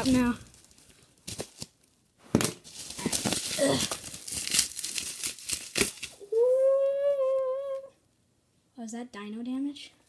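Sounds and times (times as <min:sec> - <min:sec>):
bubble wrap crinkling and tearing: 0:00.0 - 0:06.6
person humming: 0:06.2 - 0:08.0.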